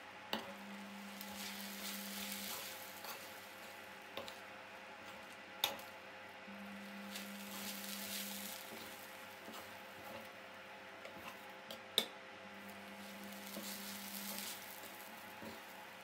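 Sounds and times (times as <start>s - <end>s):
low steady hum: 0.0s - 16.0s
metal spoon stirring in a pan: 0.4s - 4.4s, 6.8s - 10.3s, 12.7s - 16.0s.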